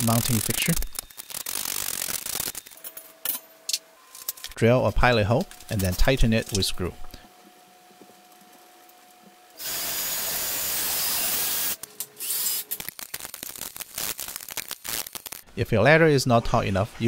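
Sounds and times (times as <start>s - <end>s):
cordless drill boring into wood: 9.6s - 12.6s.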